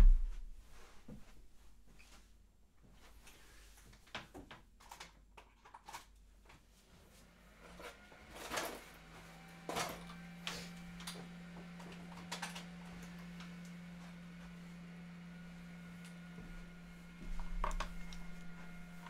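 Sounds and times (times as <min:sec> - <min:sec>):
printer humming: 0:08.3 - 0:19.0.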